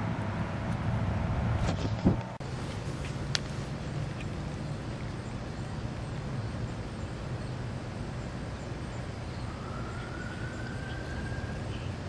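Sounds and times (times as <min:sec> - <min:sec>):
low hum: 0:00.0 - 0:12.0.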